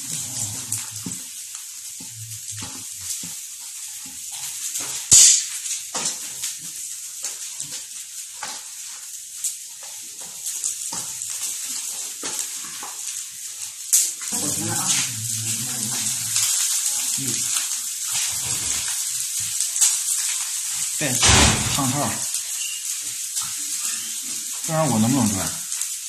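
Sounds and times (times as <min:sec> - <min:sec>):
steady high hiss: 0:04.7 - 0:05.8, 0:13.2 - 0:26.0.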